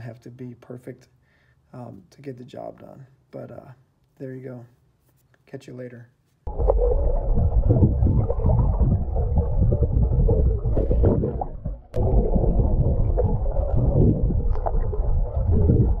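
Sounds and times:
loud low rumbling: 6.5s - 16.0s.

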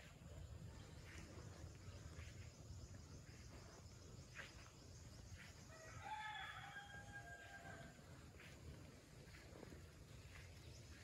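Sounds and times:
rooster crowing: 5.7s - 8.0s.

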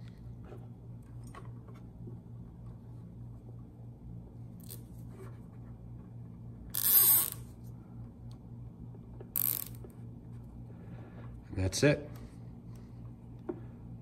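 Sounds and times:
zip tie ratcheting rasp: 6.7s - 7.5s, 9.3s - 9.9s.

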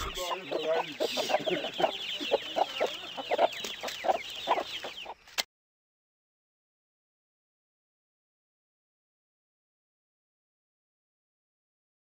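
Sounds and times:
chickens clucking: 0.0s - 5.5s.

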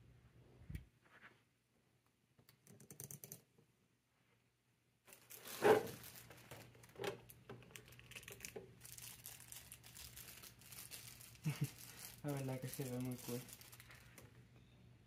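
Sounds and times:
plastic packaging crinkling: 5.1s - 14.4s.

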